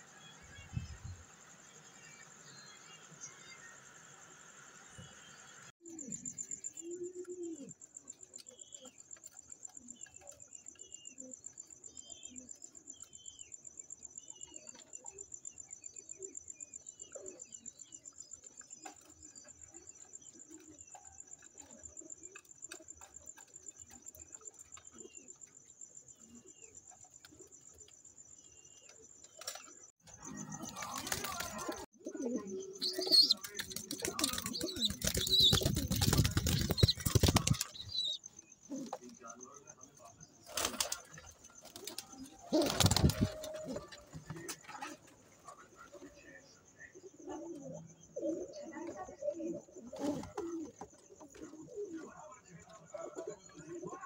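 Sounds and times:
wings flapping and rustling: 30.6 - 31.9, 32.8 - 38.2, 40.5 - 45.2
pigeons cooing: 30.6 - 37.9, 40.8 - 45.1, 45.9 - 52.2.

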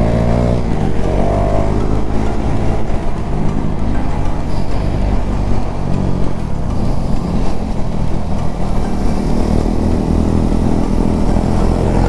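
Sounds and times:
motorcycle engine running: 0.0 - 12.0
wind noise on microphone: 0.0 - 12.0.

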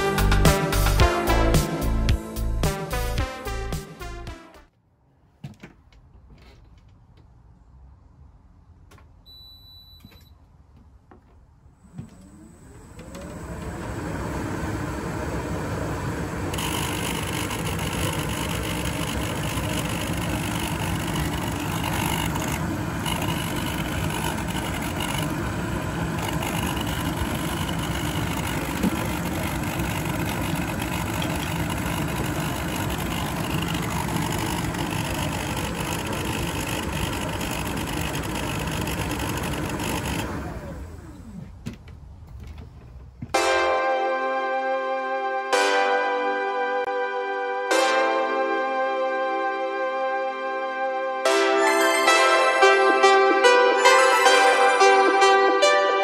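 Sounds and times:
water pump rattling buzz: 14.8 - 41.3.

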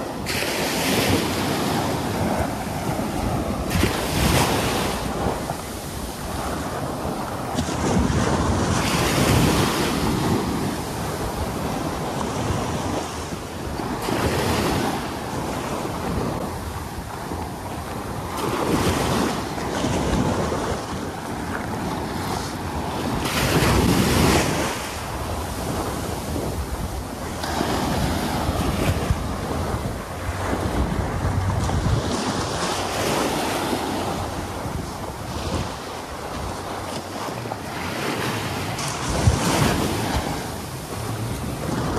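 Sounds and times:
waves breaking on a beach: 0.0 - 41.9
wind rumbling on microphone: 0.0 - 41.9.

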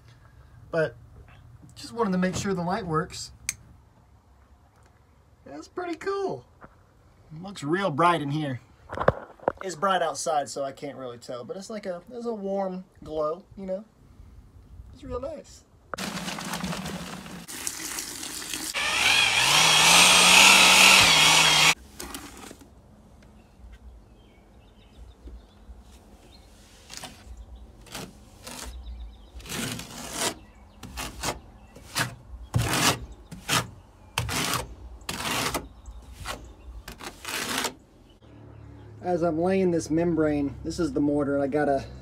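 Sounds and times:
drill mixing mortar: 16.0 - 22.6
trowel scraping mortar: 27.8 - 37.8.

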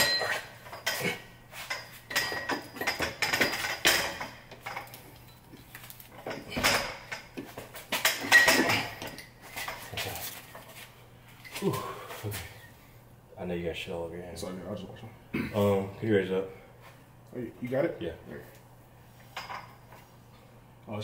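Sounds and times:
metal clanks and knocks: 0.0 - 5.4, 6.2 - 10.6.

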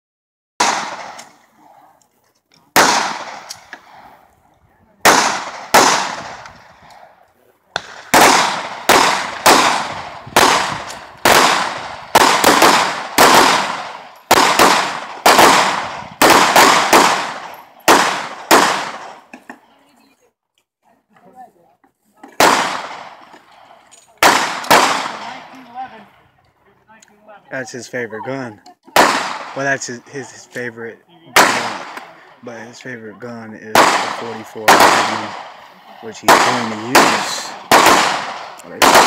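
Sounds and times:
handgun shots with echo: 0.6 - 1.4, 2.8 - 4.0, 5.0 - 6.6, 7.8 - 19.3, 22.4 - 23.4, 29.0 - 29.8, 31.4 - 32.2, 33.7 - 35.6, 36.2 - 39.0.

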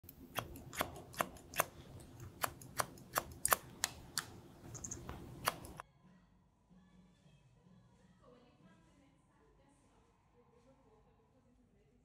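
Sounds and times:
sharp clicks: 0.1 - 5.8.

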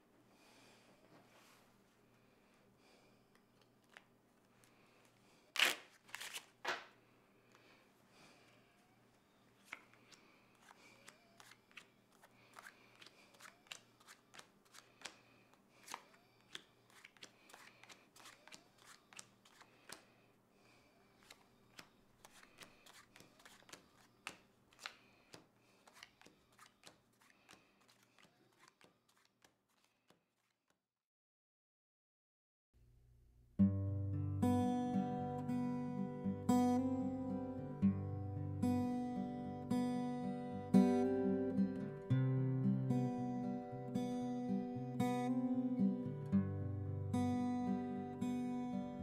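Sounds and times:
cards dealt onto wooden table: 9.6 - 20.1, 21.2 - 30.2.

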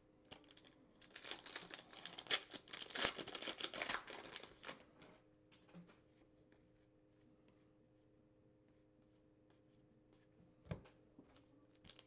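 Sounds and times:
foil wrapper crinkling and tearing: 0.3 - 4.8.

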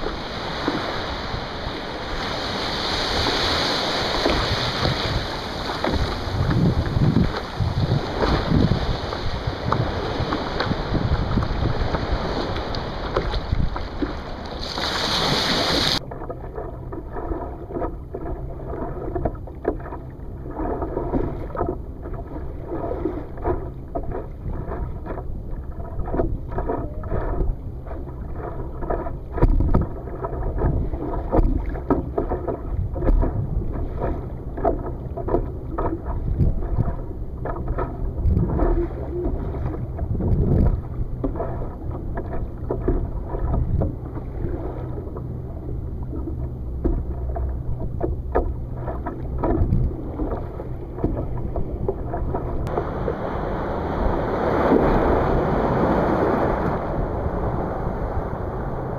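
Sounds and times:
small wave breaking: 0.0 - 16.0, 52.2 - 58.9
water sloshing and slapping: 0.0 - 58.9
water splashes: 0.0 - 58.9.

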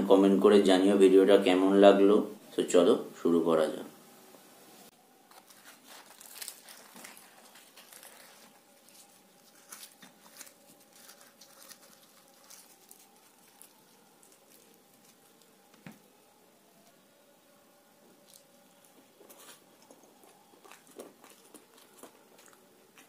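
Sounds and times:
faint steady hum: 0.0 - 23.0
crackling of fried bread tearing: 5.3 - 16.1, 18.1 - 23.0.

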